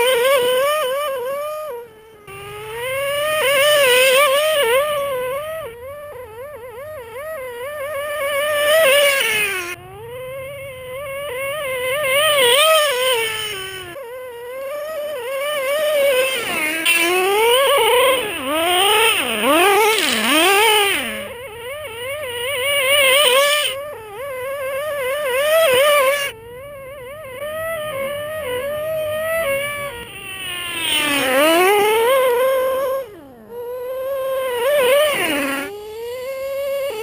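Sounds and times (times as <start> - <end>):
rc truck engine screaming: 0.0 - 37.0.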